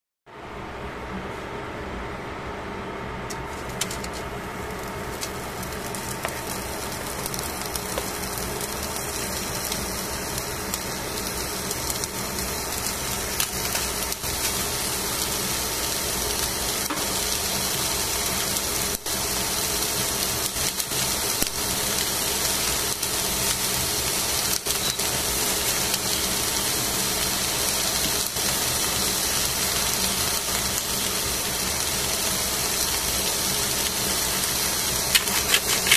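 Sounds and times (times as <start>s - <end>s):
fish sizzling in a pan: 4.6s - 35.9s
pops and crackles: 5.2s - 8.8s, 35.1s - 35.9s.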